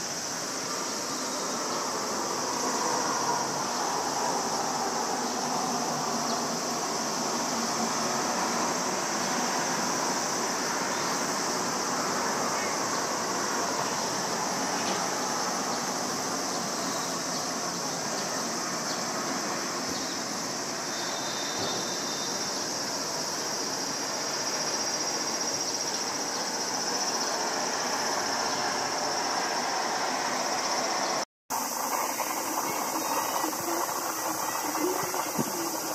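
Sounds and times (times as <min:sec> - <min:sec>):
jet engine high hiss: 0:00.0 - 0:35.9
distant jet rumble: 0:26.4 - 0:35.9.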